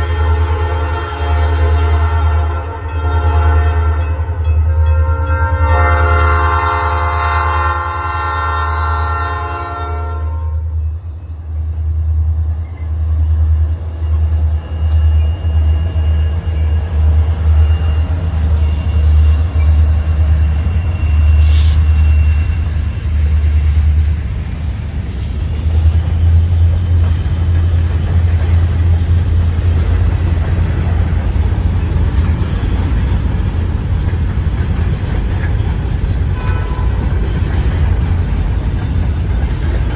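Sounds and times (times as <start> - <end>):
locomotive air horn chord: 0.0 - 10.7, 36.4 - 37.0
freight train rumbling past: 0.0 - 39.9
high steady squeal: 12.5 - 27.0.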